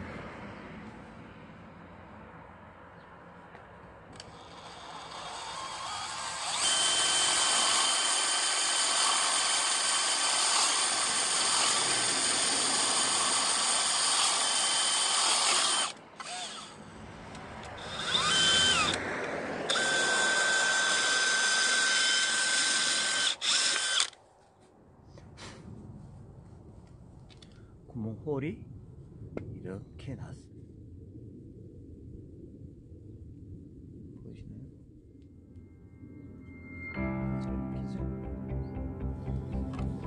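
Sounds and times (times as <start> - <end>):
power drill boring into wood: 4.2 - 16.8, 17.8 - 19.0, 19.7 - 24.2.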